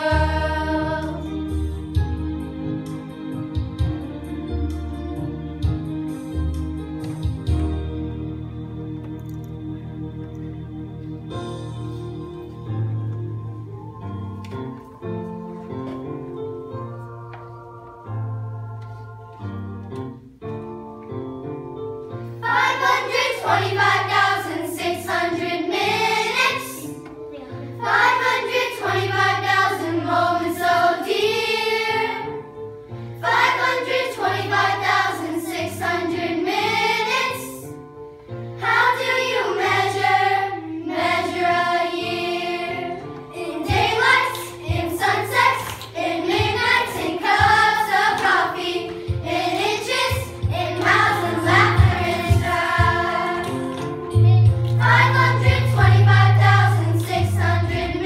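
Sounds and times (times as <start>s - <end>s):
children singing together: 0.0s - 1.7s, 22.4s - 27.1s, 27.8s - 32.5s, 33.2s - 37.8s, 38.6s - 58.0s
instrumental accompaniment: 0.0s - 58.0s.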